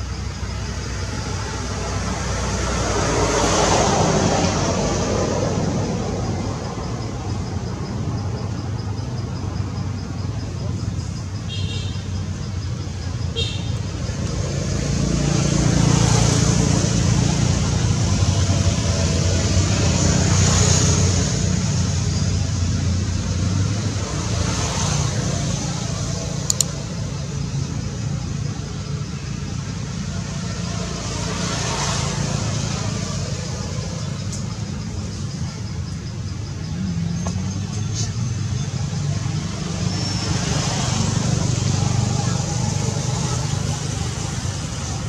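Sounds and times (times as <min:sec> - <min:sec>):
traffic engine rumble: 0:00.0 - 0:45.0
sharp double click: 0:26.5 - 0:26.8.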